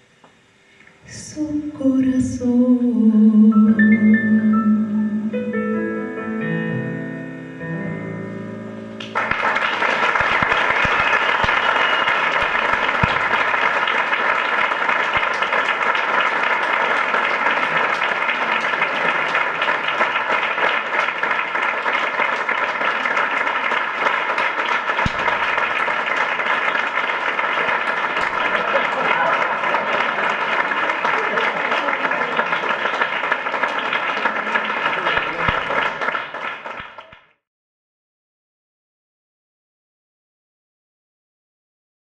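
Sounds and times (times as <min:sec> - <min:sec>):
digital piano notes: 0:03.3 - 0:09.2
audience applause: 0:09.0 - 0:37.4.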